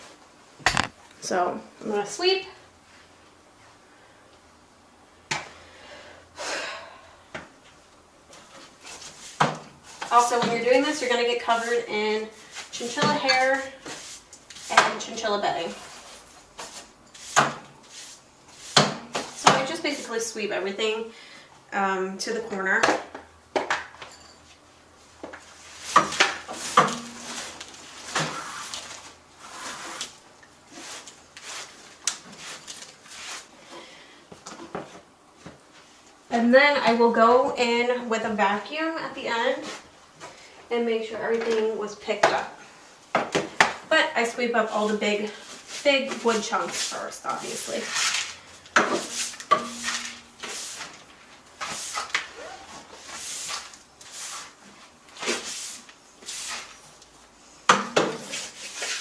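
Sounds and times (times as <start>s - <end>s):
broom sweeping: 8.4s - 20.3s, 25.5s - 33.6s, 44.6s - 59.0s
broom sweeping wood shavings: 30.7s - 33.5s, 45.4s - 48.4s, 49.0s - 51.0s, 51.6s - 52.1s, 52.7s - 56.8s, 58.2s - 59.0s.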